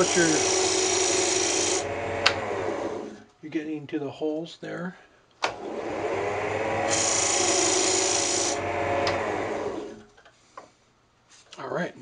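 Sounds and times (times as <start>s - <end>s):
lathe motor hum: 0.0s - 3.3s, 5.5s - 10.1s
turning tool cutting wood: 0.0s - 3.3s, 5.5s - 10.1s
lathe switch click: 9.0s - 9.2s.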